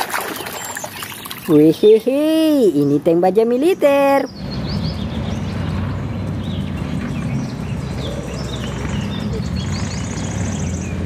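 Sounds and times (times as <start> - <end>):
tank engine and tracks rumbling: 4.3 - 11.0.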